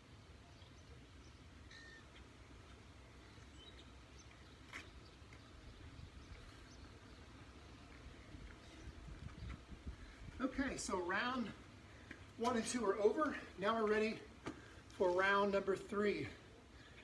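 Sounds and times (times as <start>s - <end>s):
faint bird chirps: 0.4s - 2.4s.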